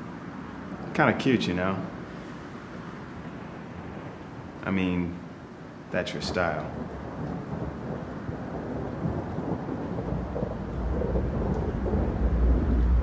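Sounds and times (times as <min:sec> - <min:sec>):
steady rushing noise: 0:00.0 - 0:13.0
low thunder-like rumble: 0:06.6 - 0:13.0.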